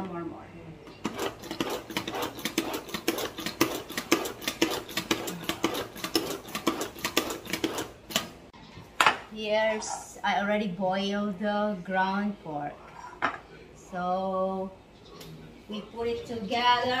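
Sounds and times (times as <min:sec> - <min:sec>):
food chopper chopping carrots: 0:01.1 - 0:08.3.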